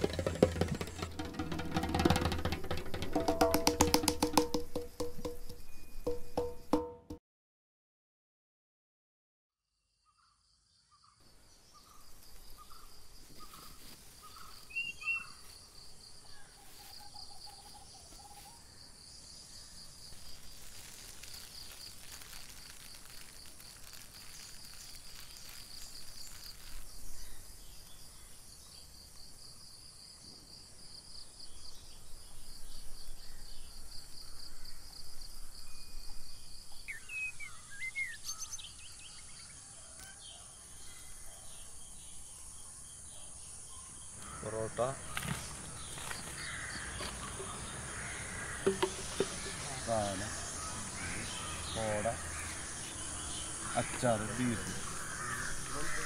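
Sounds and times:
insect trilling: 0:00.0 - 0:06.4, 0:19.5 - 0:28.6, 0:44.1 - 0:56.0.

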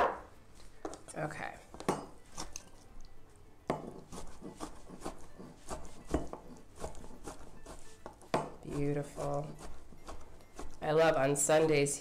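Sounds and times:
knife chopping on wooden board: 0:03.7 - 0:10.8.

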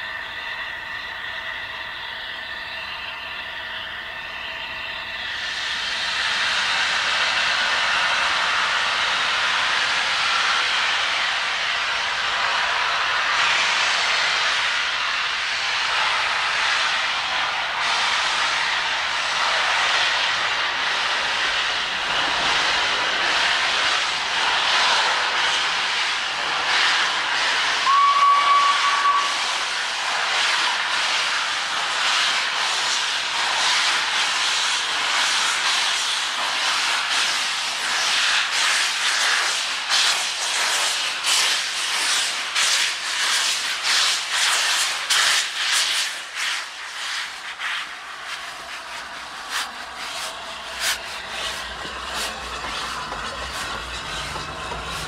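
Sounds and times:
steam locomotive hissing: 0:00.0 - 0:55.0
steam whistle blast: 0:27.8 - 0:29.6
locomotive exhaust chuffs: 0:46.8 - 0:55.0.

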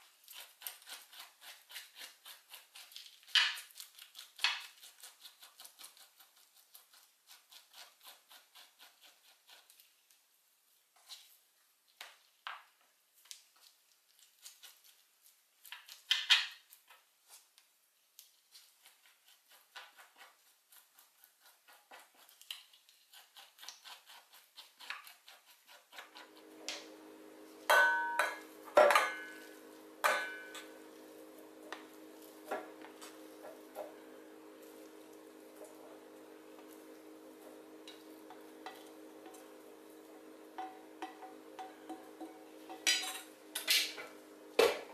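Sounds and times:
steady low hum: 0:26.1 - 0:44.9
metal bowl clanking: 0:27.7 - 0:30.7, 0:40.6 - 0:44.0.

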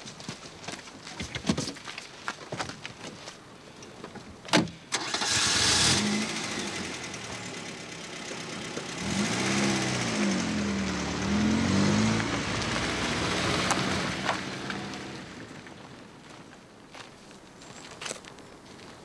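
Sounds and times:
car engine starting and revving: 0:04.9 - 0:15.8.

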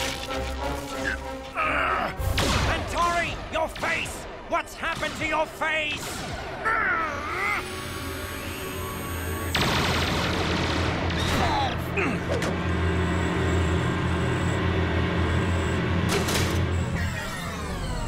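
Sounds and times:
cartoon action score: 0:01.0 - 0:10.2, 0:16.8 - 0:18.0
steady electronic tone: 0:07.6 - 0:09.9, 0:12.6 - 0:18.0.

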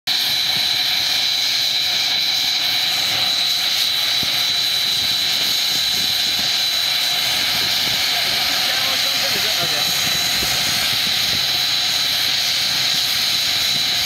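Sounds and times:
aircraft engine whine: 0:00.1 - 0:14.0.

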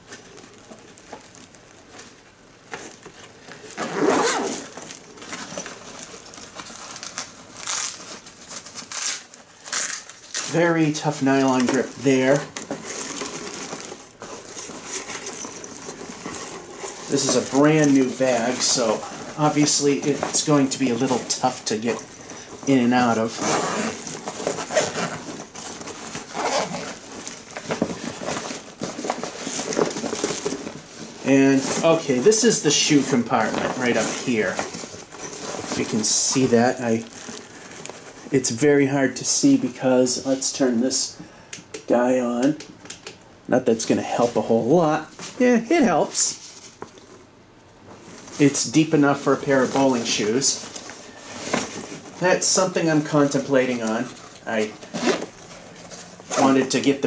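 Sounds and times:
nylon bag rustling: 0:00.0 - 0:38.6, 0:44.2 - 0:57.0
plastic wrapping crinkling: 0:00.0 - 0:38.6, 0:45.0 - 0:57.0
zipper being opened: 0:03.6 - 0:05.6, 0:14.5 - 0:25.5, 0:26.2 - 0:27.1, 0:54.2 - 0:57.0.

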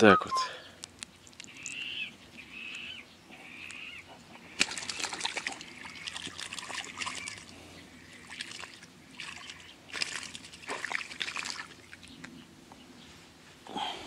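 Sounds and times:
water trickling and sloshing: 0:04.3 - 0:12.4.

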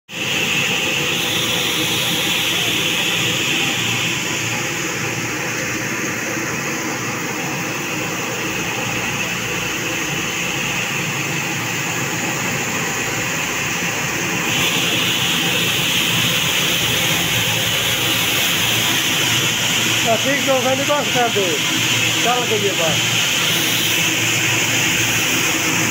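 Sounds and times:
grain cleaning machine running: 0:00.1 - 0:25.9
high hiss: 0:00.2 - 0:25.9.

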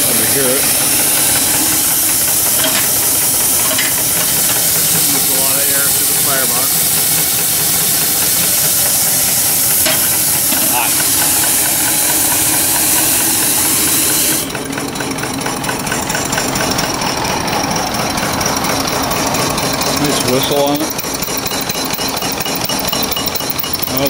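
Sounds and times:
loud steam hiss: 0:00.0 - 0:14.6
fast even ticking: 0:14.4 - 0:24.0.

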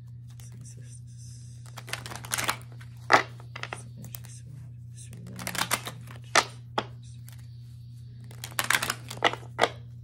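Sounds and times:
steady low hum: 0:00.0 - 0:10.0
cards being shuffled: 0:01.6 - 0:04.3, 0:05.1 - 0:07.5, 0:08.2 - 0:09.8.

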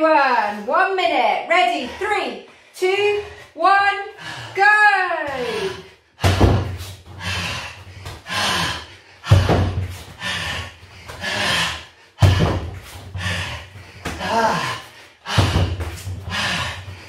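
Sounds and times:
hard voiced breaths: 0:05.3 - 0:17.0
heavy thuds on punch bag: 0:06.2 - 0:06.8, 0:09.3 - 0:09.9.

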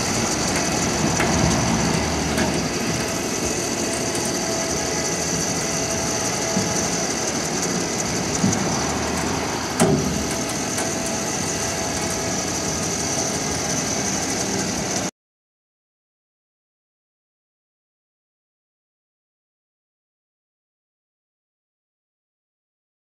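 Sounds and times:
motor running with high whine: 0:00.0 - 0:15.1
sharp clunk: 0:09.8 - 0:10.5.

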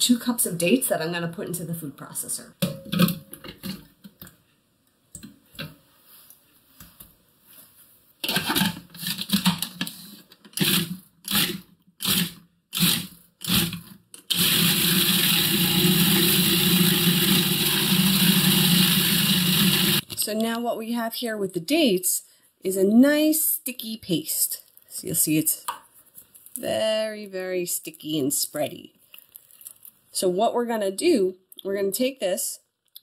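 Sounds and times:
food processor motor running: 0:10.6 - 0:20.0.

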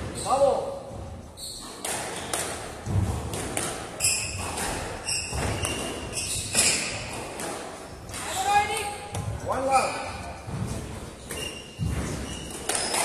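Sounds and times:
shoes squeaking on wooden floor: 0:00.0 - 0:13.0
squash ball knocking: 0:00.9 - 0:09.4
feet thudding: 0:10.3 - 0:12.9.

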